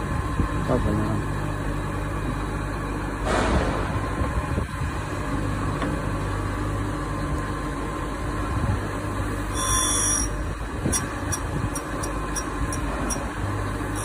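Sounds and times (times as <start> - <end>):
grinder motor humming: 9.5 - 14.0.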